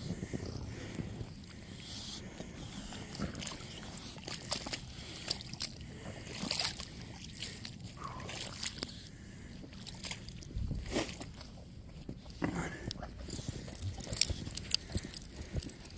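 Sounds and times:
river water sloshing and splashing: 3.4 - 9.0.

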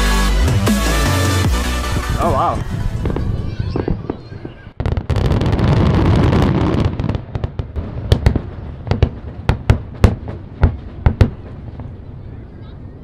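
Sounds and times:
fireworks crackling: 2.2 - 12.2
fireworks bangs: 2.8 - 12.4.

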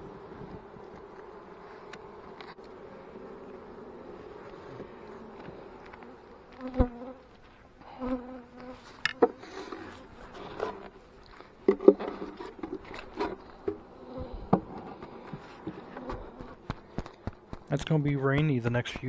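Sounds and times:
bees buzzing: 0.0 - 19.0
wooden hive boxes knocking: 15.7 - 19.0.

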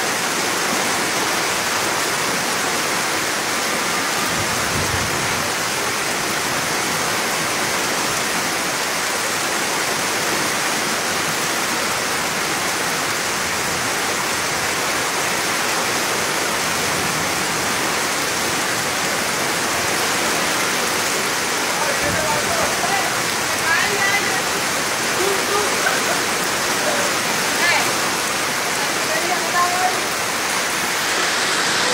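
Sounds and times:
heavy rain falling: 0.0 - 31.9
river in flood rushing: 0.0 - 31.9.

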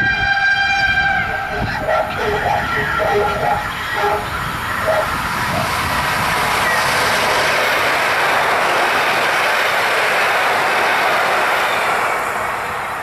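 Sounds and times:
train horn: 0.0 - 5.7
train passing wheel noise: 0.0 - 13.0.

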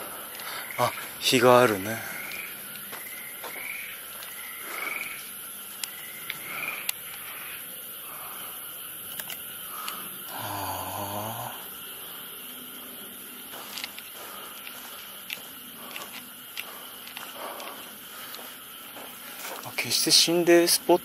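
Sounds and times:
light clicks: 9.1 - 10.0, 13.7 - 18.4.

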